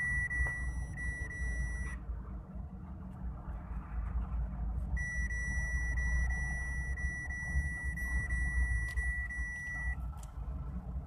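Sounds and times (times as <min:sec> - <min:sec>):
high electronic beep tone: 0:00.0 - 0:02.0, 0:05.0 - 0:10.0
car cabin road noise: 0:00.0 - 0:11.0.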